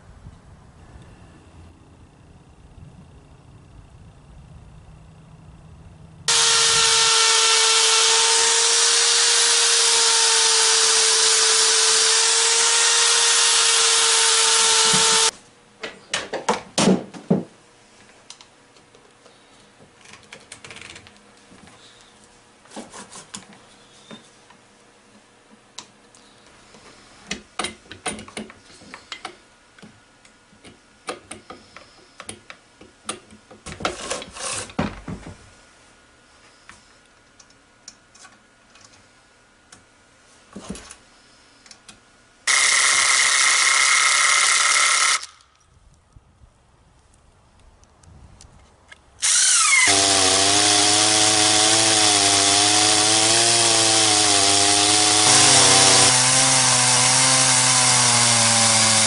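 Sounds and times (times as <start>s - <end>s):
chainsaw running: 6.3s - 15.4s, 42.5s - 45.5s, 49.2s - 59.0s.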